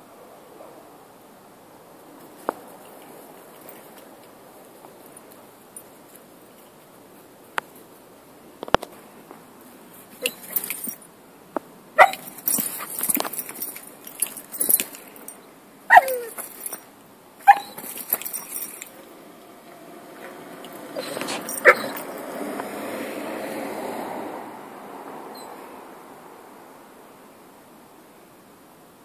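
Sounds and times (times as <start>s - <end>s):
dogs scuffling: 8.8s - 11.1s, 12.0s - 19.2s, 20.1s - 22.3s
dogs yipping and barking: 10.1s - 11.1s, 12.0s - 19.2s, 20.1s - 22.5s.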